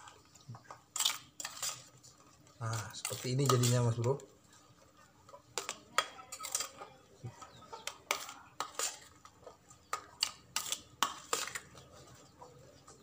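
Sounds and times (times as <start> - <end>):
metal spoon scraping metal bowl: 0.9 - 4.1, 5.5 - 6.8, 7.8 - 9.3, 9.9 - 12.0.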